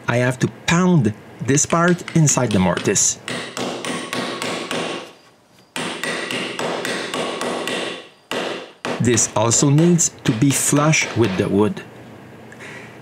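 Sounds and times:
hammer tapping metal fitting: 0:01.6 - 0:03.7.

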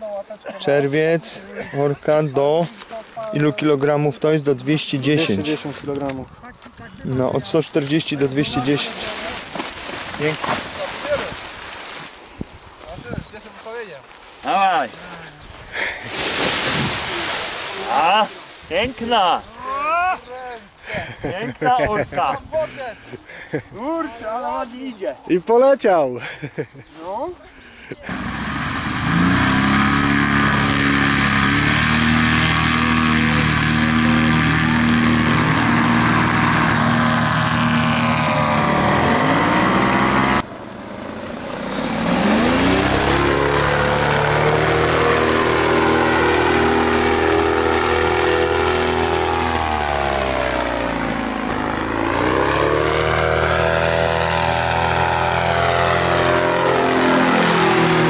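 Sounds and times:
paramotor engine and propeller: 0:00.6 - 0:12.0, 0:27.4 - 0:58.0.

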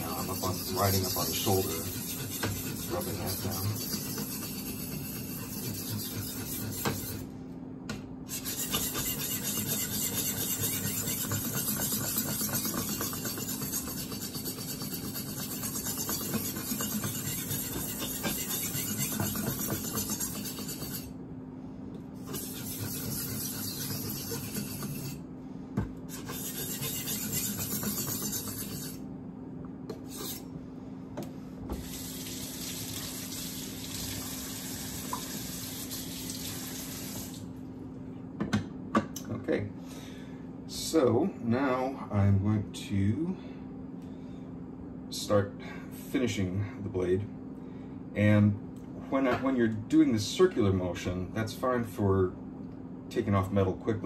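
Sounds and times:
knife rasping on sharpening stone: 0:00.0 - 0:07.2, 0:08.3 - 0:21.1, 0:22.2 - 0:25.2, 0:26.1 - 0:29.0, 0:30.0 - 0:30.4
kitchen faucet running: 0:31.8 - 0:37.4.

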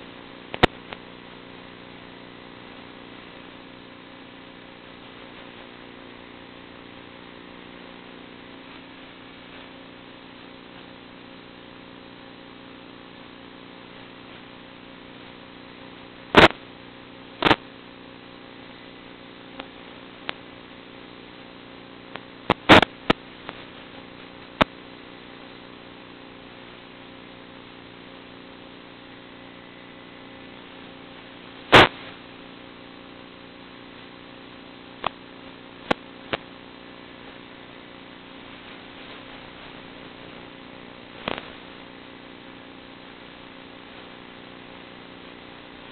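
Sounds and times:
steady low hum: 0:00.0 - 0:45.9
sharp clicks: 0:00.5 - 0:01.0.

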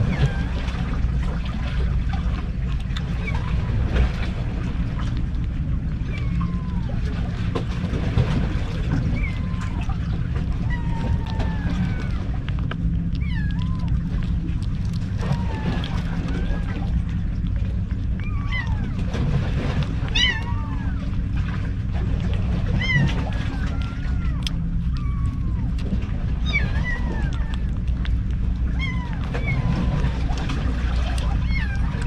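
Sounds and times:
steady low rumble: 0:00.0 - 0:32.0
kittens mewing: 0:06.0 - 0:07.2, 0:09.0 - 0:19.1, 0:19.8 - 0:21.4, 0:22.6 - 0:32.0.

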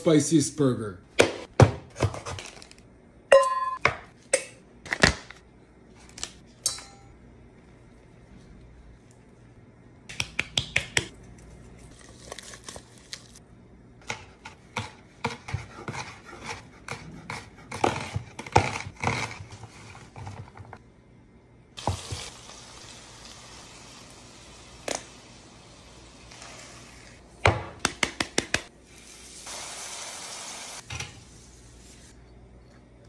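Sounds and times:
knife chopping on wooden board: 0:14.1 - 0:19.3
food sizzling in a pan: 0:21.8 - 0:27.2, 0:28.8 - 0:32.1.

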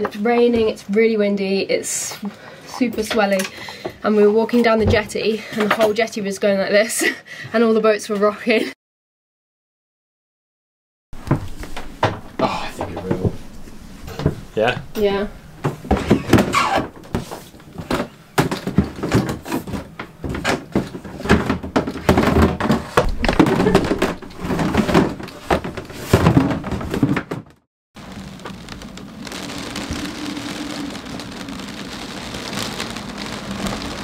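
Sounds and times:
plastic bins knocking and scraping: 0:11.2 - 0:13.5, 0:14.1 - 0:27.6
rain on deck and windows: 0:11.2 - 0:27.1, 0:28.0 - 0:34.0.

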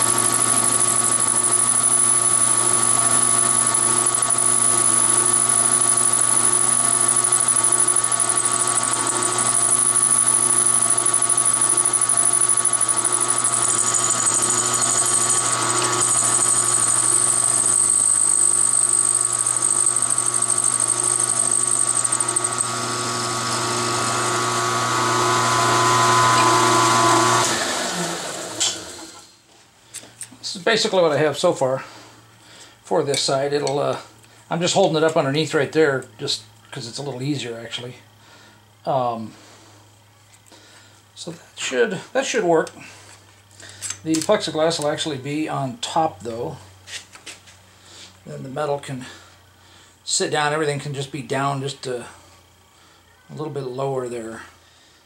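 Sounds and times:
high-pitched cutting squeal: 0:00.0 - 0:27.4
milling machine motor hum: 0:00.0 - 0:29.2.

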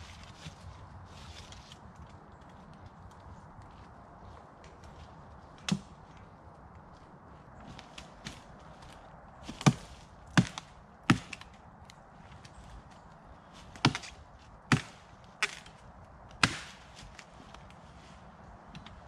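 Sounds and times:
axe chopping wood: 0:09.5 - 0:11.5, 0:13.6 - 0:15.8, 0:16.4 - 0:17.2.

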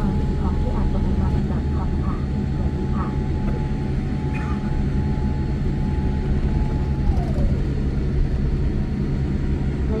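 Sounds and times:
jet engine and runway rumble: 0:00.0 - 0:10.0
whine sliding down in pitch: 0:05.8 - 0:08.6.

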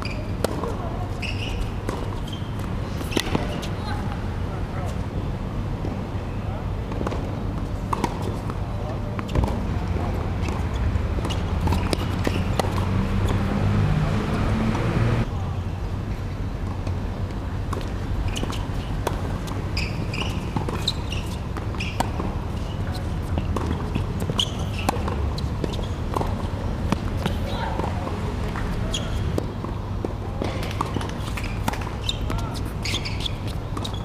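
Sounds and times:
tennis ball bouncing: 0:00.0 - 0:03.7, 0:06.9 - 0:15.3, 0:17.7 - 0:34.0
short high squeaks: 0:01.1 - 0:03.8, 0:19.7 - 0:23.0, 0:24.2 - 0:26.0, 0:30.9 - 0:34.0.

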